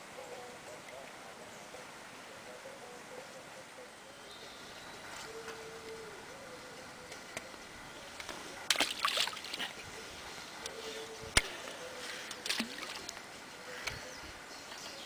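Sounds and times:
hands splashing lake water: 8.7s - 9.8s, 12.2s - 13.2s.

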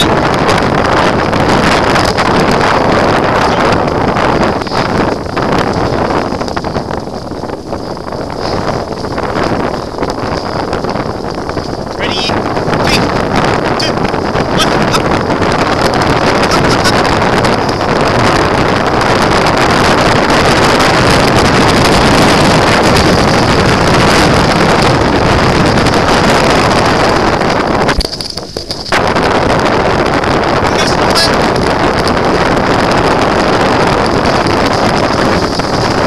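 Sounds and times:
wind buffeting microphone: 0.0s - 36.0s
wheels rolling over wet track: 15.3s - 36.0s.

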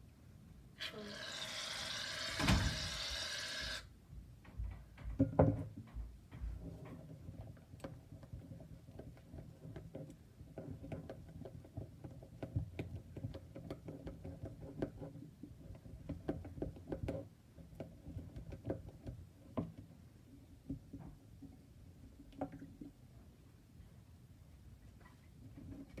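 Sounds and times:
spatula tapping and scraping bowl: 6.4s - 19.9s
spatula stirring slime: 6.6s - 23.0s.

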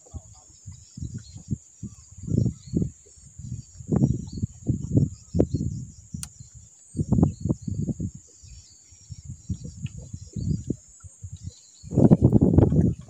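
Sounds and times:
insects buzzing: 0.0s - 13.0s
low bumps and rumbles: 2.2s - 6.3s, 11.4s - 13.0s.

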